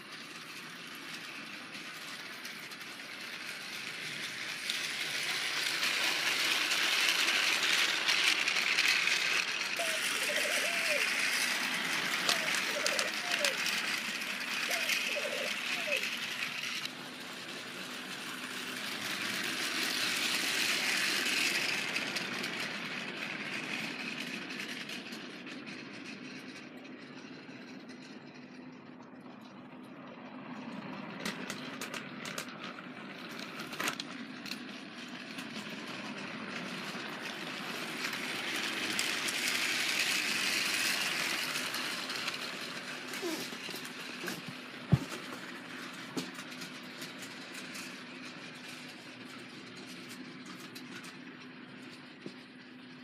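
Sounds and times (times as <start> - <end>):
toy train motors whirring: 0.0 - 53.0
wheels rattling over plastic track: 0.0 - 53.0.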